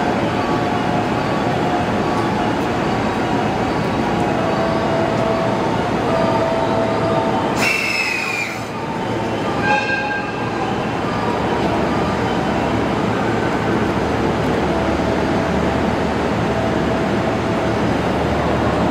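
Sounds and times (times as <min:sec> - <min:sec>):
train rumbling along track: 0:00.0 - 0:18.9
high-pitched wheel squeal: 0:07.6 - 0:08.8.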